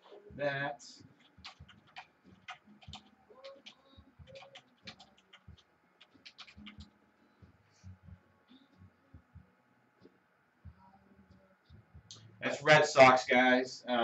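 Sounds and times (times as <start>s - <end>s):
typing on computer keyboard: 1.2s - 6.9s.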